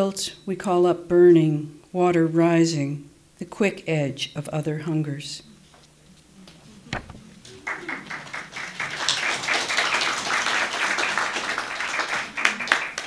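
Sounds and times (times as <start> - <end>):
audience applauding: 6.8 - 13.0
single knock: 6.9 - 7.2.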